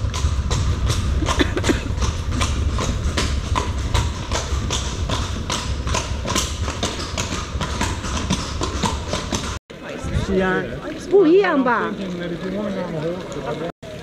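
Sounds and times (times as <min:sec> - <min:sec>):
horse hooves clip-clopping on pavement: 0:00.0 - 0:09.6.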